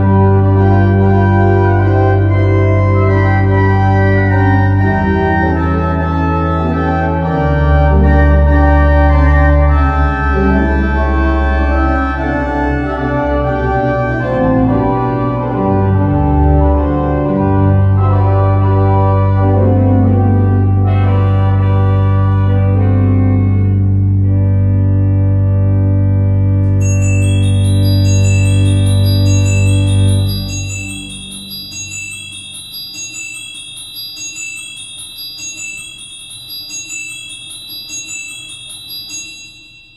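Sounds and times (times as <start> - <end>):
deep organ pedal bass: 0.0 - 26.8
pipe organ chords: 0.0 - 32.5.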